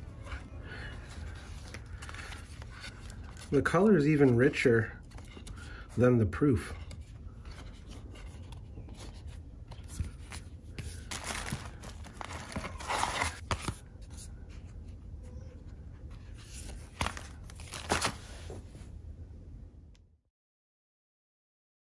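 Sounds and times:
paper and plastic rustling: 0.0s - 14.8s, 16.1s - 18.9s
book pages flapping and tapping: 5.0s - 5.7s, 6.5s - 14.3s, 16.2s - 18.7s.

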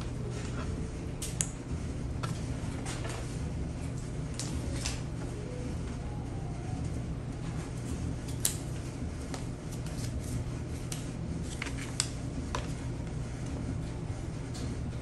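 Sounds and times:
steady low hum: 0.0s - 15.0s
paper rustling: 11.4s - 12.8s.

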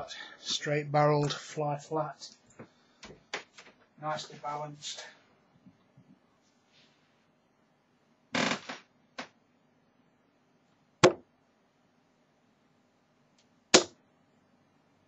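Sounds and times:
darts hitting dartboard: 11.0s - 11.3s, 13.7s - 14.0s.

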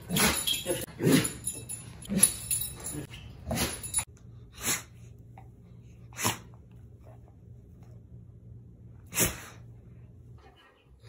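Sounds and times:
dog sneezing: 4.6s - 4.9s, 6.2s - 6.6s, 9.1s - 9.6s.

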